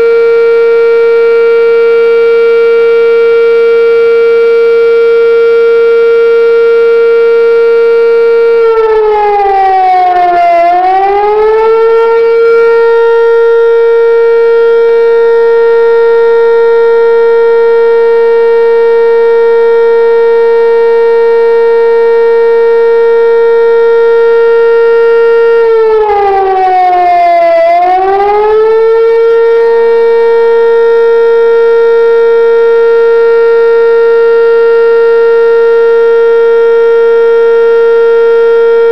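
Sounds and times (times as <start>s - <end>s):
warning siren: 0.0s - 38.9s.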